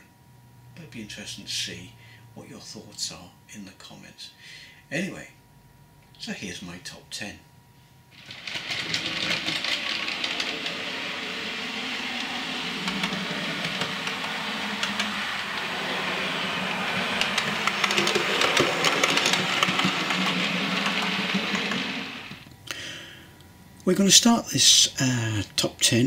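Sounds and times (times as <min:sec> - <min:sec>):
wheels clicking over rail joints: 0:08.2 - 0:22.4
model train motor running: 0:08.2 - 0:22.5.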